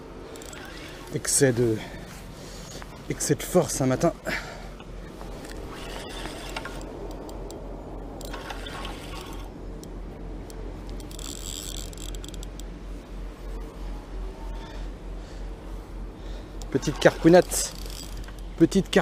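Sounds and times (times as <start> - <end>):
fishing reel gears whirring: 0.0 - 1.8, 5.4 - 12.7, 16.3 - 19.0
high rapid reel rattle: 8.2 - 9.5, 11.0 - 12.6, 16.7 - 19.0.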